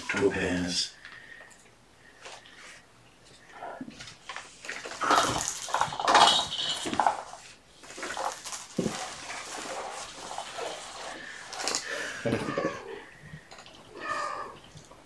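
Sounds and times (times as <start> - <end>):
kittens rustling and knocking: 3.2 - 12.8.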